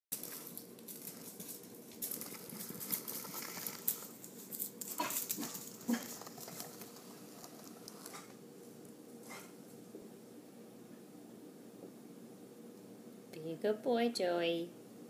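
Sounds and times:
kitten paws skittering on floor: 0.1 - 8.4.

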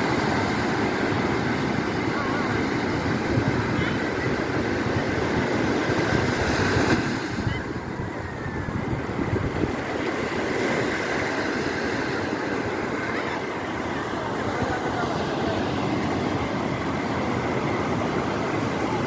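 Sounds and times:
ocean surf breaking: 0.0 - 19.0
wind buffeting microphone: 0.8 - 11.5.

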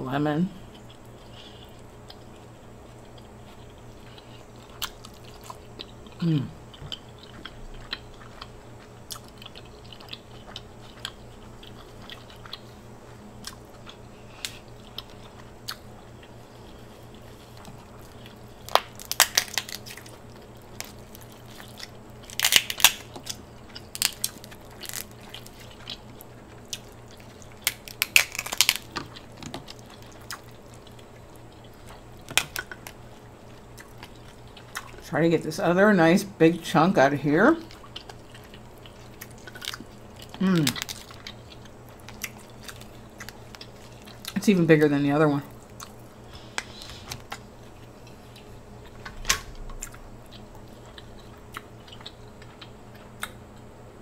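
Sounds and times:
soft chewing: 0.6 - 35.1, 37.6 - 44.5, 45.4 - 53.7
person humming mm: 6.2 - 6.6, 40.4 - 40.8
crab shell cracking: 18.6 - 31.0.

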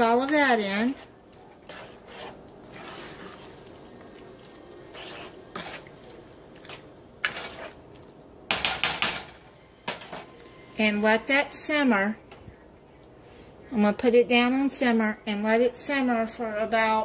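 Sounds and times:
spoon stirring pasta in sauce: 0.0 - 9.0.

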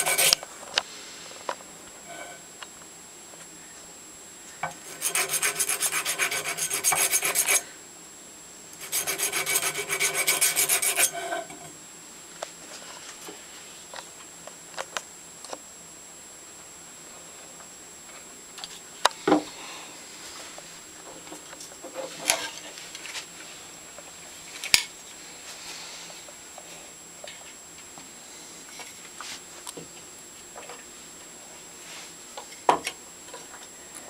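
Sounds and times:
file rasping on metal: 0.0 - 0.4, 4.8 - 7.6, 8.8 - 11.5.

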